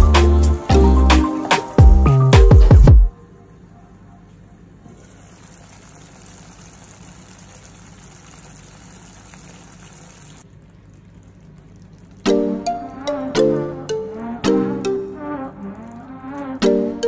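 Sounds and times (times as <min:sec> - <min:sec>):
sauce bubbling in a pot: 0:05.1 - 0:13.3, 0:14.1 - 0:17.0.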